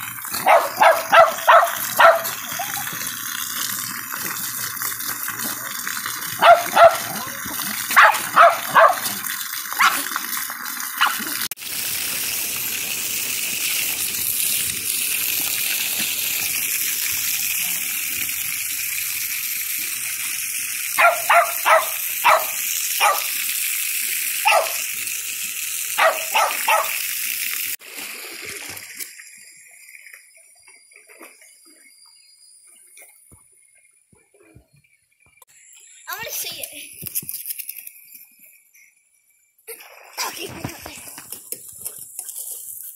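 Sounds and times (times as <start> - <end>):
water gushing onto step: 0.0 - 29.4, 39.7 - 42.9
dog barking: 0.4 - 2.8, 6.4 - 9.2, 9.8 - 10.0, 11.0 - 11.2, 21.0 - 23.3, 24.4 - 24.8, 26.0 - 27.0.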